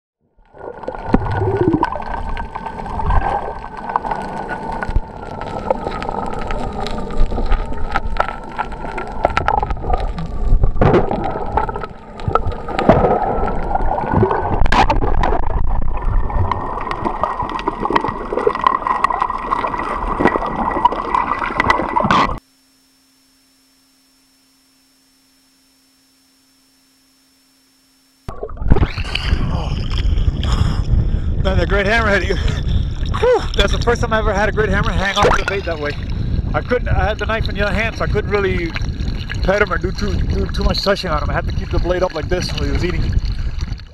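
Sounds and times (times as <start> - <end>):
low rumble: 0.4 - 19.3, 28.3 - 43.9
air bubbles gurgling underwater: 0.4 - 22.4, 32.8 - 43.9
high wavering whine: 0.4 - 30.4.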